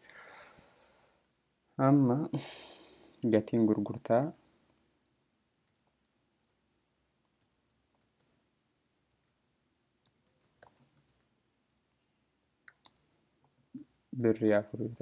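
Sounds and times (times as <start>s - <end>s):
computer keyboard clicks: 10.2s - 11.1s, 12.7s - 13.0s.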